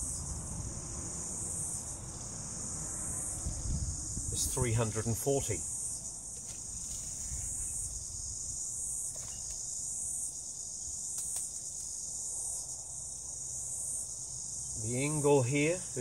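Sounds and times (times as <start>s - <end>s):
insects chorus: 0.0s - 16.0s
faint clicks: 11.1s - 11.9s.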